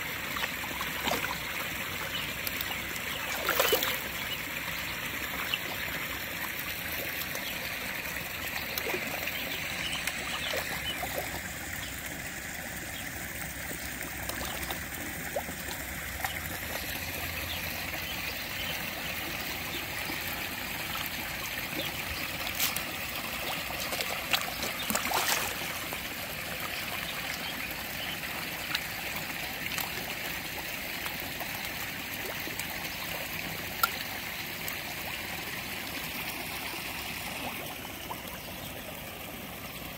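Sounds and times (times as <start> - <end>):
pond water trickling: 0.0 - 39.9
fish splashing at surface: 23.6 - 25.8.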